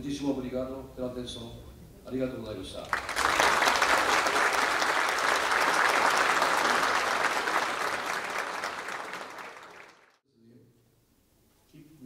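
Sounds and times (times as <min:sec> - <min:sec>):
audience applauding: 0:02.8 - 0:10.2.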